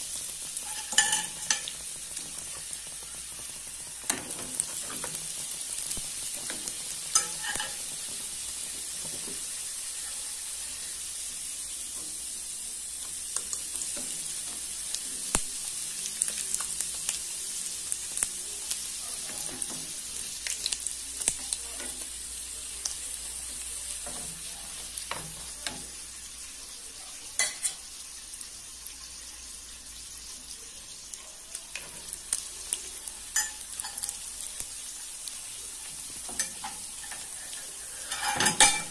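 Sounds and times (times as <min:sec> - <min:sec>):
pastries sizzling in hot oil: 0:00.0 - 0:38.9
utensils clicking against pan: 0:00.5 - 0:10.1, 0:13.0 - 0:15.4, 0:18.1 - 0:22.2, 0:24.0 - 0:26.0, 0:27.4 - 0:27.9, 0:31.5 - 0:34.7, 0:36.0 - 0:38.9.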